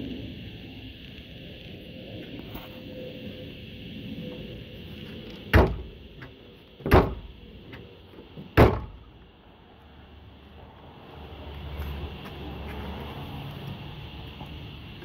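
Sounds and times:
car trunk lid thudding shut: 5.5 - 5.9, 6.8 - 7.3, 8.6 - 9.0.

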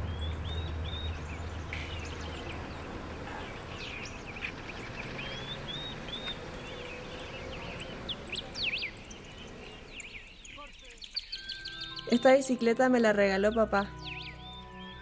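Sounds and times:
street traffic hum: 0.0 - 11.2
small birds chirping: 0.0 - 15.0.

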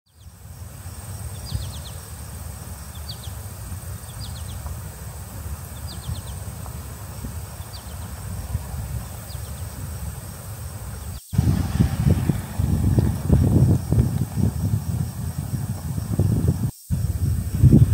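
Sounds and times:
birds chirping: 0.1 - 17.9
low rumble: 11.4 - 17.9.

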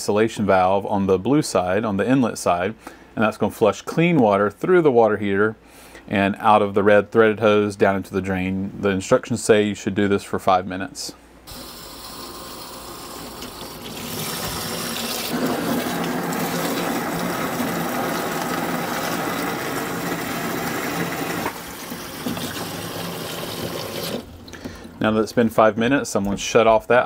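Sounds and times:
water rushing from a hose: 11.5 - 24.3.

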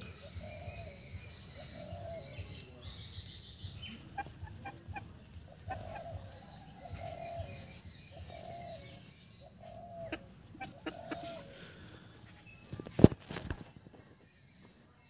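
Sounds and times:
chicken clucking: 3.9 - 8.7, 9.6 - 11.7.

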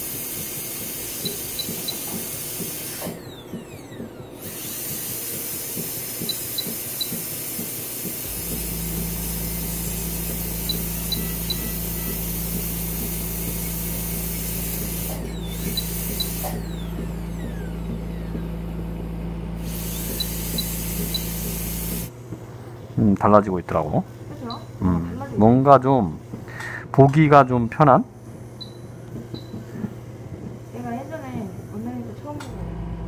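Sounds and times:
dental drill hissing: 0.0 - 22.1.

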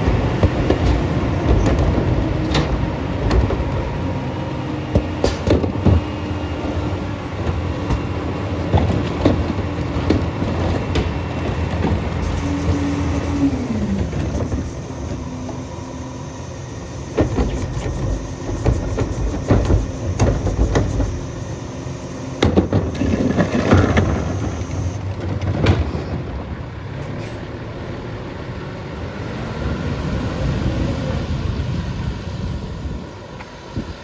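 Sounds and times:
bangs and clatter of trash cart: 0.0 - 3.8, 4.9 - 6.1, 7.4 - 13.4, 17.1 - 21.3, 22.4 - 26.6
diesel truck engine running: 0.0 - 33.2.

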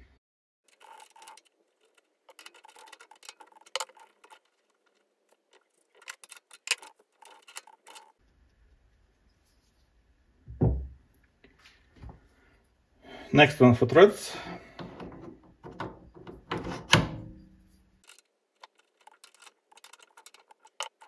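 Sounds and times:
dull thump: 10.5 - 11.0.

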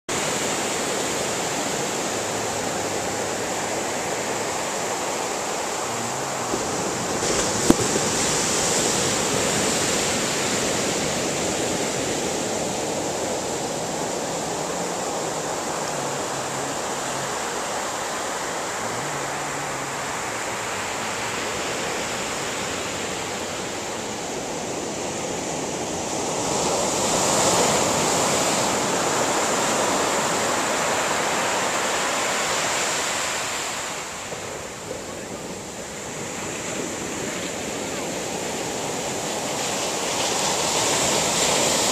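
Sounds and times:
ocean surf breaking on sand: 0.1 - 41.9.

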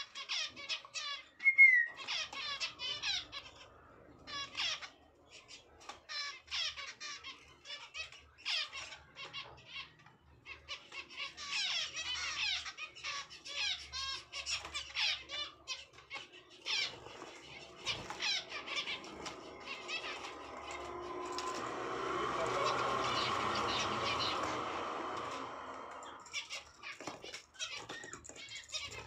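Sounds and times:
finches chirping: 0.0 - 29.0
steady noise: 18.5 - 26.4.

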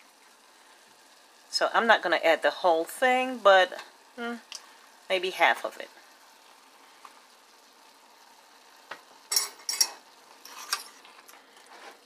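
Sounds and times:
faint sizzle from pan: 0.0 - 12.0
spoon scraping a saucepan: 9.3 - 11.1.

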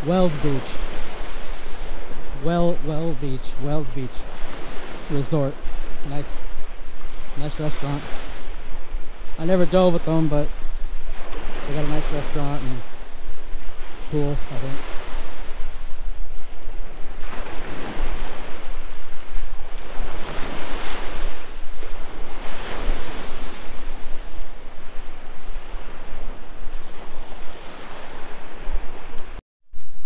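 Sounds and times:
wind buffeting microphone: 8.0 - 29.4.

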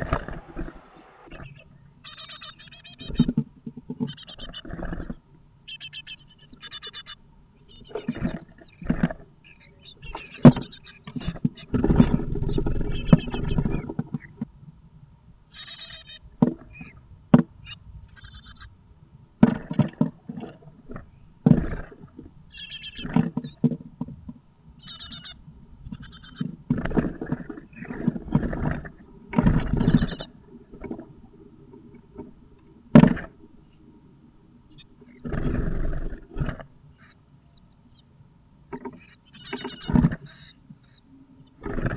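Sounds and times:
high-pitched chick calls: 0.0 - 3.4, 5.6 - 8.2, 15.5 - 17.0, 17.6 - 18.8, 22.5 - 23.7, 24.8 - 26.6, 28.8 - 30.4, 39.0 - 41.1
chicks scrabbling and wingbeats: 0.0 - 5.2, 5.8 - 14.5, 19.4 - 33.8, 38.8 - 41.9.

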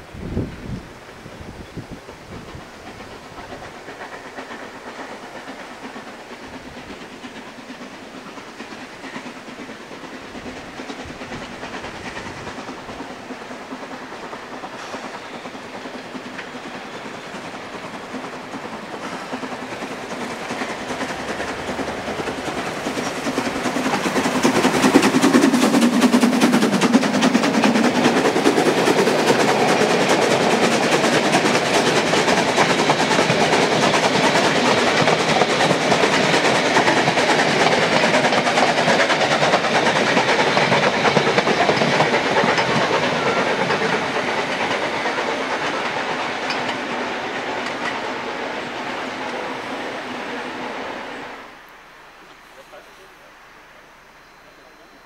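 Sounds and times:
steam locomotive exhaust beats: 0.0 - 55.0
train coaches running: 0.0 - 55.0.

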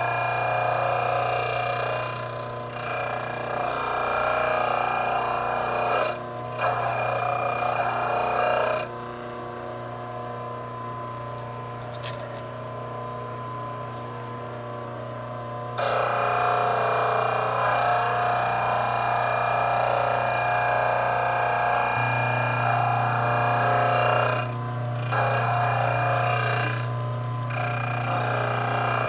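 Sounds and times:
drill bit grinding on wheel: 0.0 - 8.9, 15.8 - 29.0
motor humming: 15.6 - 29.0.

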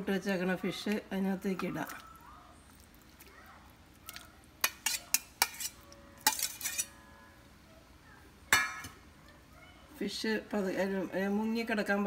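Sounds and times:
spoon clinking on metal plate: 4.6 - 7.0.

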